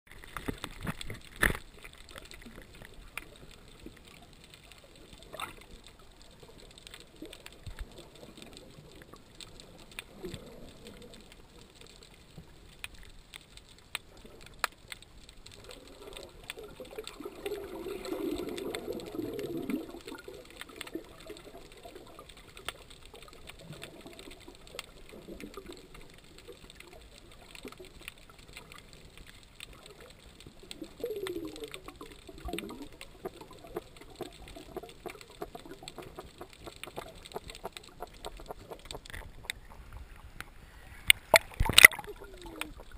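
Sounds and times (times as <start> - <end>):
sharp underwater clicks: 0.1 - 42.9
muffled underwater bubbling: 15.6 - 29.0, 29.7 - 42.9.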